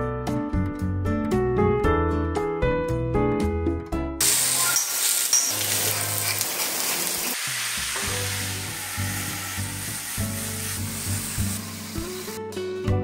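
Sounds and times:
jazz piano music: 0:04.2 - 0:07.4
food sizzling on a griddle: 0:04.2 - 0:12.4.

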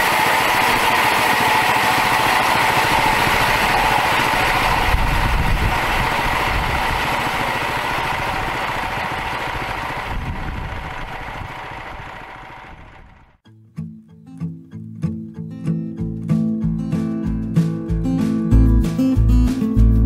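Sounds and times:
high whine: 0:00.0 - 0:13.4
small gasoline engine running: 0:00.0 - 0:13.4.

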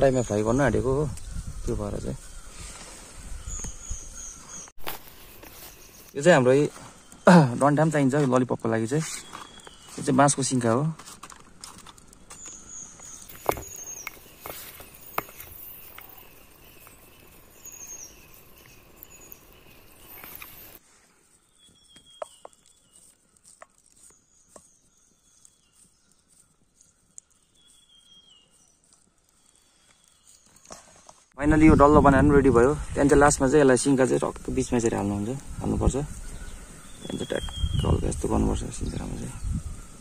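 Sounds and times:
bird chirping: 0:00.0 - 0:10.8, 0:12.2 - 0:31.0, 0:33.2 - 0:40.0
background hiss: 0:00.0 - 0:31.8
hands handling food and sticks: 0:07.1 - 0:31.2.

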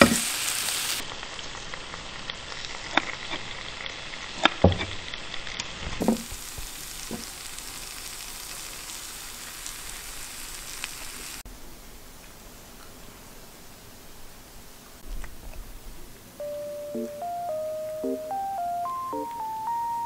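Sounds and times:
frying sizzle: 0:00.0 - 0:11.4, 0:16.4 - 0:20.0.

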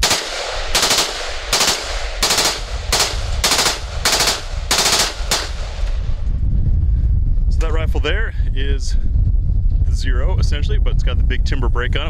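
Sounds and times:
rifle firing bursts: 0:00.0 - 0:06.0.

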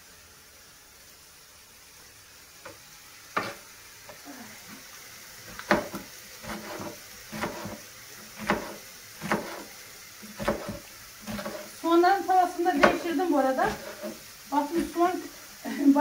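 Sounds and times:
faint sizzle of frying: 0:00.0 - 0:16.0
knife chopping on wooden board: 0:03.4 - 0:03.6, 0:05.5 - 0:11.7, 0:12.8 - 0:13.1, 0:13.7 - 0:14.2.

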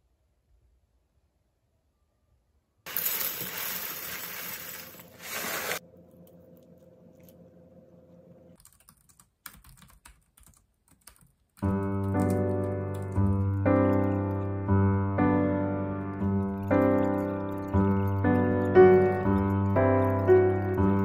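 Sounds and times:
computer keyboard typing: 0:08.6 - 0:14.8, 0:16.2 - 0:21.0
background piano music: 0:11.6 - 0:21.0.

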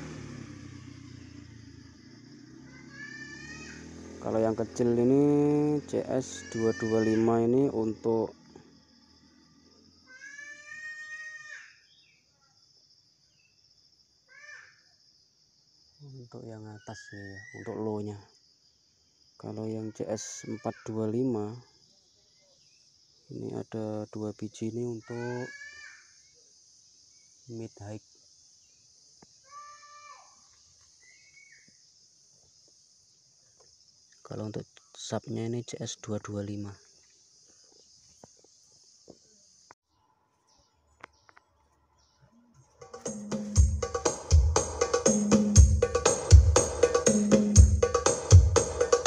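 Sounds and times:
insects chirring: 0:00.0 - 0:49.0
animal crying: 0:02.6 - 0:03.8, 0:06.2 - 0:07.4.

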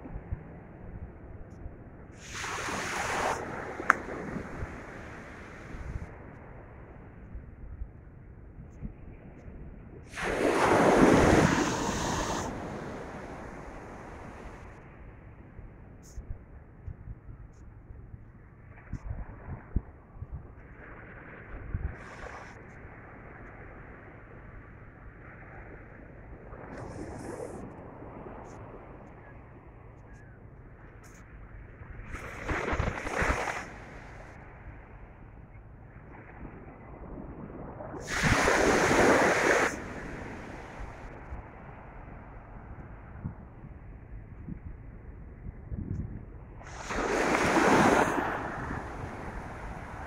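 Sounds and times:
faint ocean surf: 0:00.0 - 0:07.6, 0:08.9 - 0:16.7, 0:20.6 - 0:44.7, 0:46.3 - 0:50.0
wind noise: 0:00.0 - 0:15.0, 0:15.6 - 0:30.3, 0:31.0 - 0:35.0, 0:35.9 - 0:50.0
wave breaking on beach: 0:02.2 - 0:05.7, 0:10.1 - 0:14.6, 0:32.1 - 0:33.9, 0:38.0 - 0:41.1, 0:46.6 - 0:50.0
wind buffeting microphone: 0:02.2 - 0:06.3, 0:31.8 - 0:34.2, 0:36.1 - 0:50.0
rushing wind burst: 0:10.1 - 0:14.6, 0:38.0 - 0:41.1, 0:46.6 - 0:50.0.

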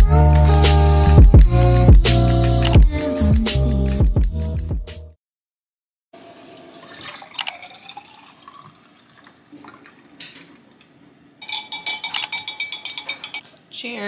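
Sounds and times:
milk pouring: 0:06.2 - 0:12.4
coffee pouring into a glass: 0:06.3 - 0:10.2
straw clinking against glass: 0:11.4 - 0:13.4.

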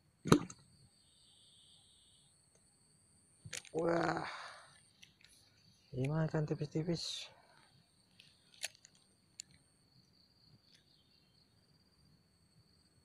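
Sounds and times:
faint steady high tone: 0:00.8 - 0:02.7.

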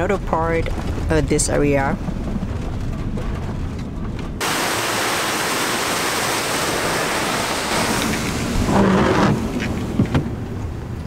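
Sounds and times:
van rumbling on gravel road: 0:00.0 - 0:11.0
waterfall rushing: 0:04.4 - 0:08.9.

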